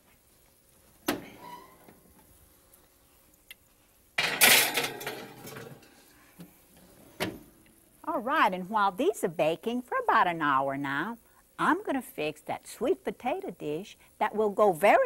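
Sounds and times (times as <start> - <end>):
glass dish scraping on metal rack: 4.2 - 5.9.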